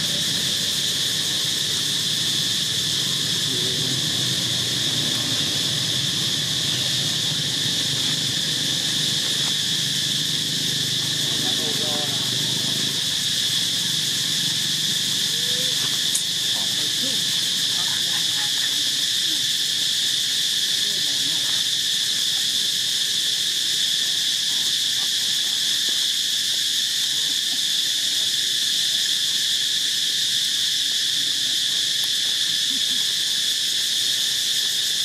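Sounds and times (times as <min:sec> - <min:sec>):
insects droning: 0:00.0 - 0:35.0.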